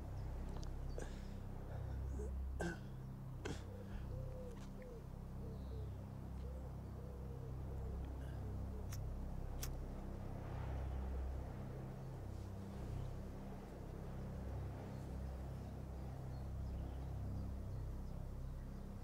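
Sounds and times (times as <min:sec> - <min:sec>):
low steady drone: 0:00.0 - 0:19.0
bird cooing softly: 0:03.5 - 0:09.0.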